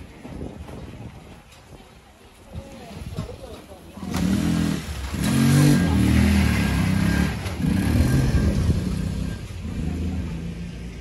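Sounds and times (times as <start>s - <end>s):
small vehicle engine revving: 4.0s - 11.0s.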